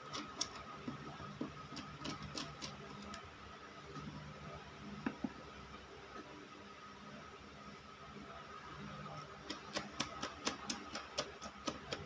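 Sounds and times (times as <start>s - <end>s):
faint steady hum: 0.0s - 12.0s
plastic parts clicking on wood: 1.7s - 3.2s.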